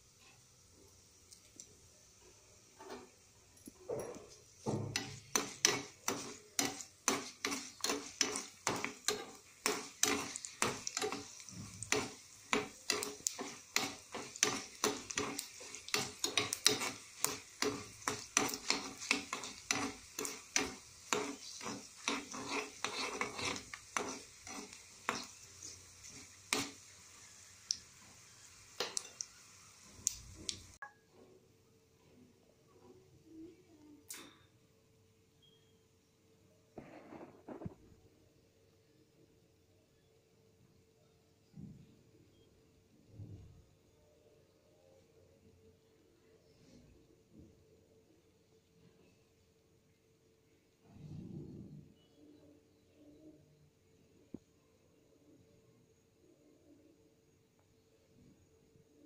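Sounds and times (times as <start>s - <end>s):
frying sizzle: 0.0s - 30.9s
metal ladle scraping a pan: 4.8s - 27.3s.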